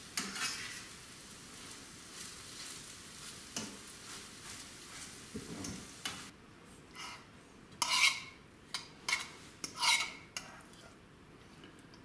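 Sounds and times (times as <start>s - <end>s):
metal utensil scraping a pan: 0.0s - 1.0s, 7.0s - 7.2s, 7.8s - 10.9s
eggs sizzling in a frying pan: 0.0s - 6.3s.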